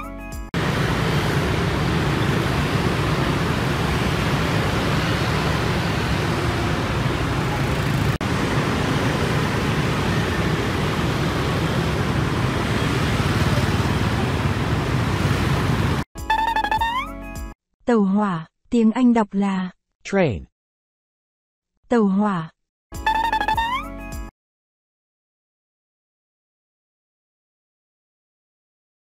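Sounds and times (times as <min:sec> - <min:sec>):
dense street traffic rumble: 0:00.6 - 0:16.1.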